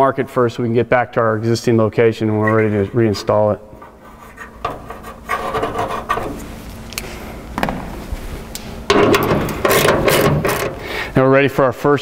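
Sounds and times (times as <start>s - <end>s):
hand tool scraping metal: 2.4s - 6.5s, 8.9s - 10.8s.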